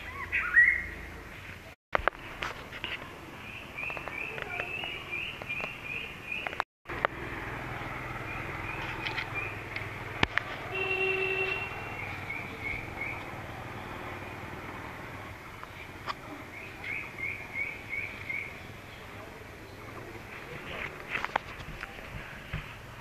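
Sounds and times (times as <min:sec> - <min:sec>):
vehicle horn toot: 0:10.6 - 0:12.1.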